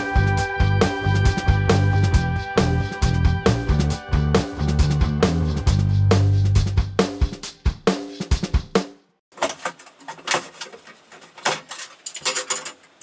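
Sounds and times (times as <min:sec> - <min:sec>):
music with drum beat: 0:00.0 - 0:09.1.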